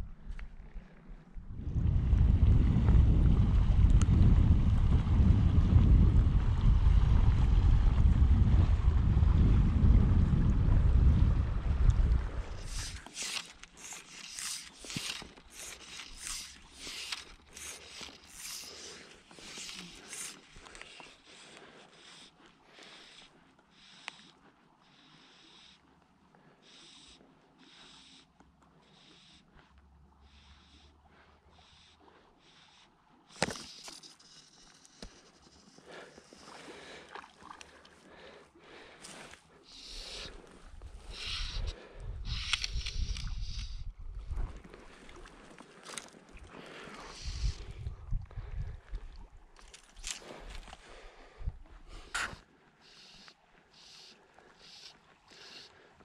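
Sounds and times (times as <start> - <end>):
faint flowing river water: 0.0 - 56.0
fly rod and line casting: 11.6 - 56.0
fly line swishing: 12.5 - 21.2, 39.0 - 43.8.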